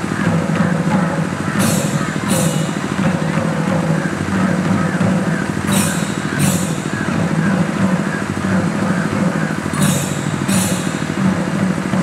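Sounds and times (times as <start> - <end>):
drums in fast rhythm: 0.0 - 12.0
hissing cymbal crashes: 0.5 - 12.0.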